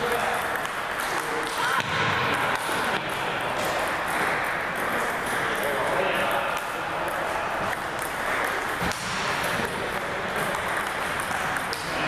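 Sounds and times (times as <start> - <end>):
background murmur: 0.0 - 12.0
ping-pong balls bouncing: 0.0 - 12.0.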